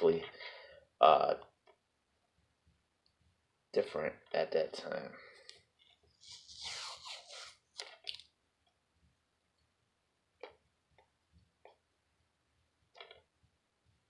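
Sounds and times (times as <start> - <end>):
fingernail scratching sticker: 6.2 - 7.5.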